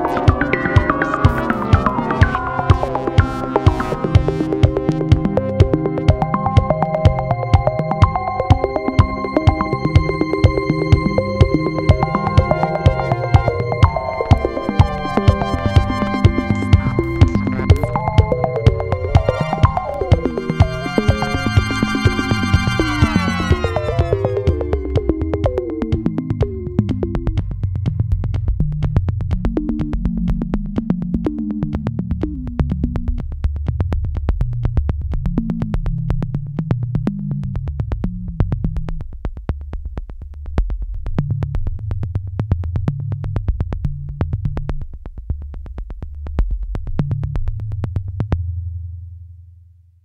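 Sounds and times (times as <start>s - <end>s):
electronic music with synth bass: 0.0s - 33.2s.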